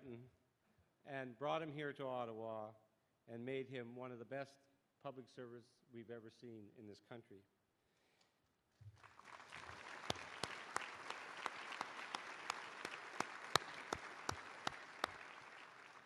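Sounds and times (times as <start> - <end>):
close hands clapping: 8.8 - 16.0
audience applauding: 8.9 - 16.0.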